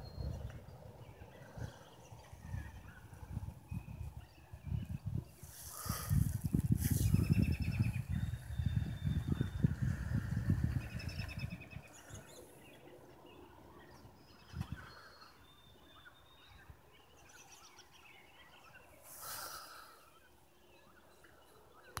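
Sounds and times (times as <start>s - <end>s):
bird chirps: 6.1s - 9.8s, 10.6s - 22.0s.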